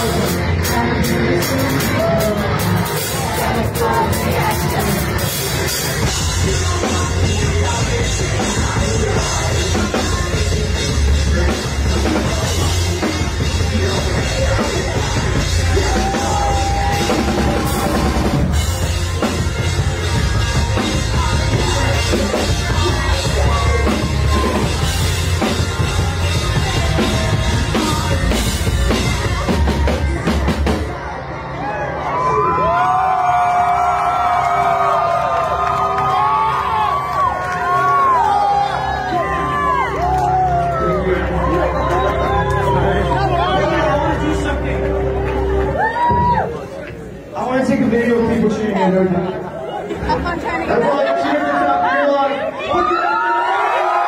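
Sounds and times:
drum kit: 0.0 - 31.1
bass guitar: 0.0 - 47.3.

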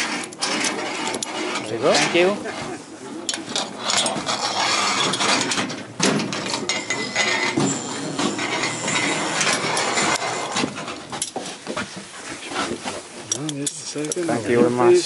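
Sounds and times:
metallic clanking and rattling: 0.0 - 2.7, 3.3 - 11.6
footsteps on steel decking: 2.6 - 13.4.

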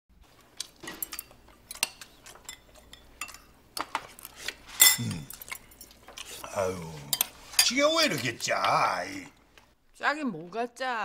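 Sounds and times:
chopsticks clinking on bowls: 0.6 - 9.0.

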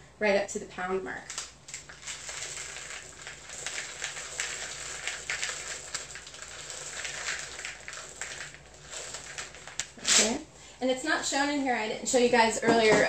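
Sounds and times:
chocolate chips pouring into plastic bowl: 1.3 - 10.4.

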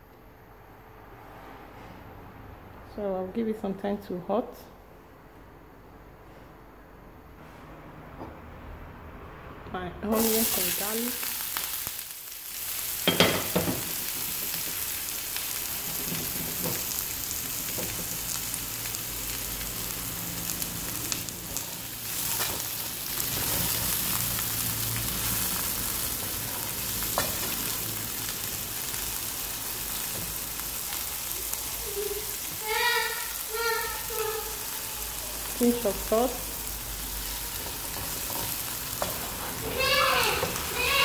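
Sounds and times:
onions sizzling in oil: 10.0 - 41.0.

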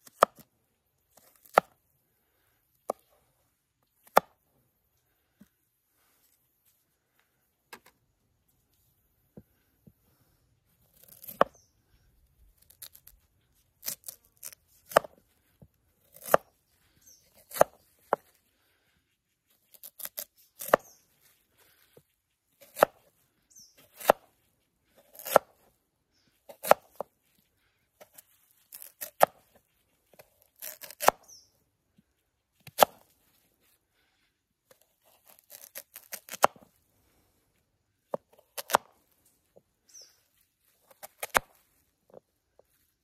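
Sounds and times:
knife slicing sweet potato: 0.0 - 0.5, 1.1 - 1.8, 10.9 - 11.7, 12.6 - 15.3, 16.0 - 16.5, 17.2 - 18.4, 19.7 - 21.0, 22.6 - 23.1, 23.8 - 24.3, 25.0 - 25.6, 26.5 - 27.1, 28.0 - 29.6, 30.2 - 31.4, 32.6 - 33.1, 34.7 - 36.6, 38.4 - 38.9, 40.9 - 41.6.

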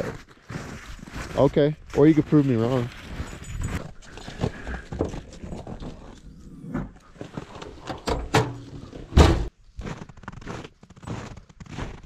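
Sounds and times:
loud thump: 9.2 - 9.5.

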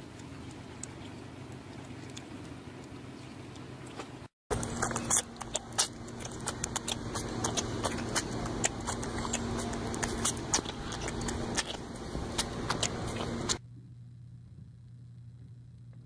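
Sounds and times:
steady low hum: 0.0 - 16.0
cub suckling wet smacks: 3.8 - 13.6.

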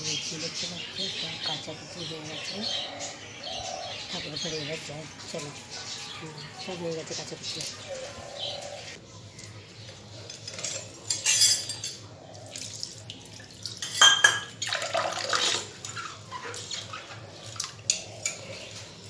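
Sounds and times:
water pouring and splashing: 12.4 - 19.0.

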